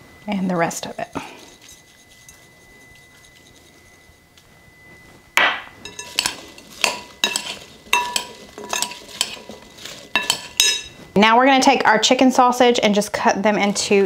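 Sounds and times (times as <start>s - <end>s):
spoon clinking against glass bowl: 0.8s - 4.2s, 5.8s - 11.0s
vegetables tossed in bowl: 5.8s - 11.1s.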